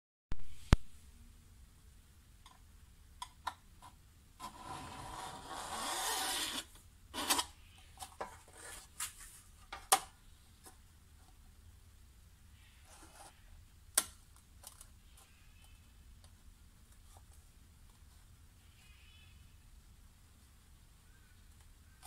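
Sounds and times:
tool scraping copper sheet: 0:04.4 - 0:07.5.

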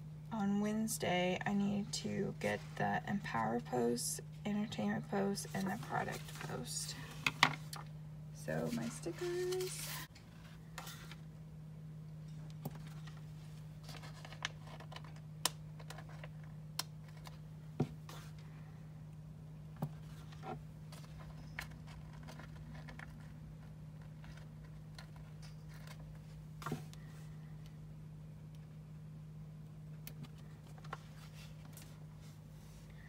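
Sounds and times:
steady low hum: 0:00.0 - 0:33.0
paper rustles: 0:08.6 - 0:11.2, 0:12.7 - 0:15.2.

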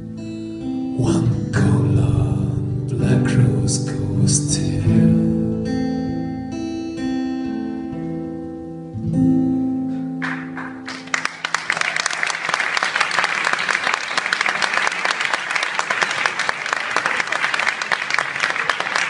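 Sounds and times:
guitar chords ringing: 0:00.0 - 0:11.2
audience applause: 0:10.2 - 0:19.0.

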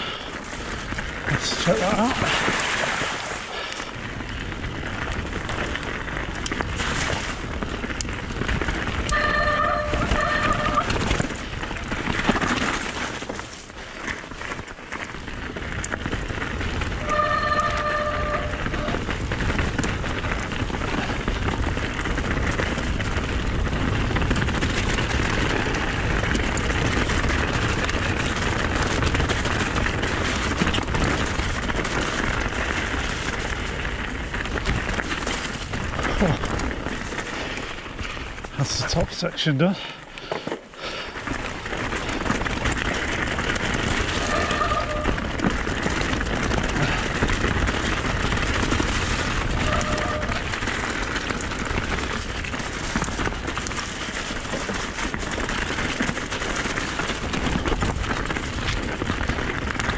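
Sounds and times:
bike rattling: 0:00.0 - 0:59.9
bike tyres crunching on gravel: 0:00.0 - 0:59.9
short squeals: 0:44.2 - 0:45.2, 0:49.6 - 0:50.4.

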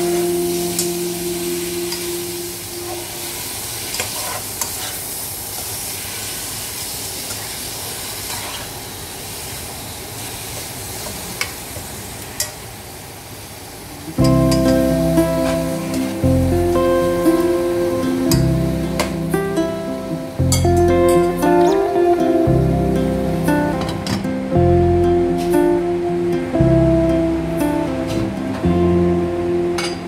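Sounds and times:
meat sizzling in a pot: 0:00.1 - 0:19.4.

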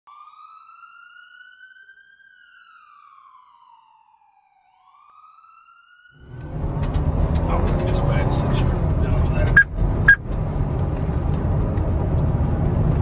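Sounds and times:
siren wailing: 0:00.1 - 0:06.6.

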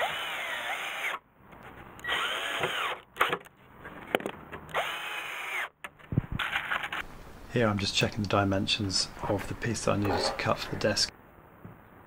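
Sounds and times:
cordless drill driving screws: 0:00.0 - 0:01.2, 0:02.0 - 0:03.0, 0:04.7 - 0:05.7.

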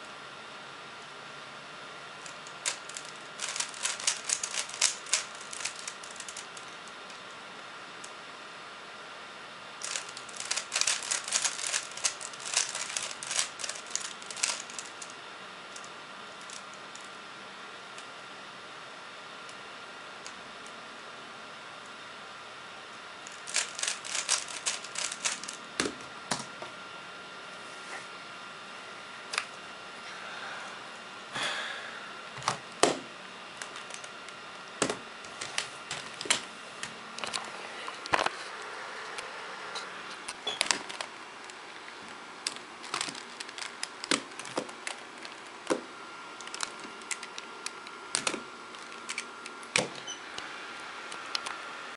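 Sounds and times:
plastic puzzle cube clicking: 0:02.6 - 0:06.3, 0:09.8 - 0:14.9, 0:23.5 - 0:25.5.

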